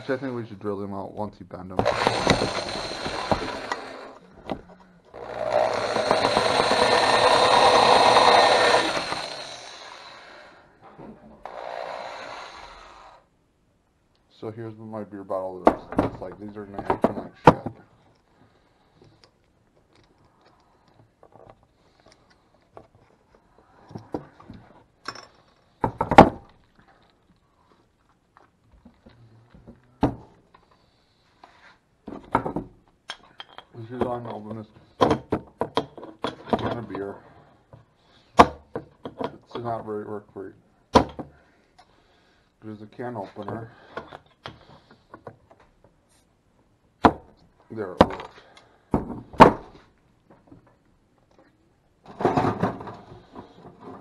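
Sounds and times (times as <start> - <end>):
drill press cutting metal: 1.8 - 4.2, 5.2 - 10.2
objects knocking on wooden workbench: 32.1 - 32.8.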